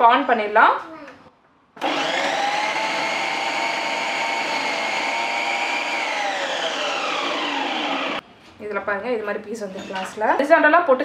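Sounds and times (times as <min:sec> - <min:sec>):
food processor motor whining: 0:01.8 - 0:08.2.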